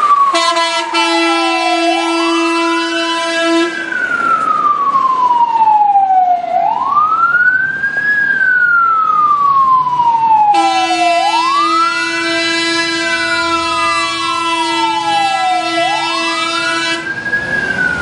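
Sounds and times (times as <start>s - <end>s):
fire engine wail siren: 0.0s - 18.0s
steady horn tone: 0.3s - 3.9s, 10.5s - 17.1s.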